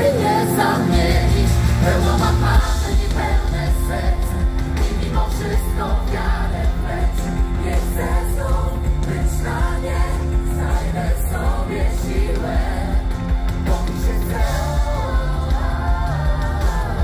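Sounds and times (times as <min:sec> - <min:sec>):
drums: 0:00.0 - 0:17.0
live pop band playing: 0:00.0 - 0:17.0
several voices singing: 0:00.0 - 0:17.0.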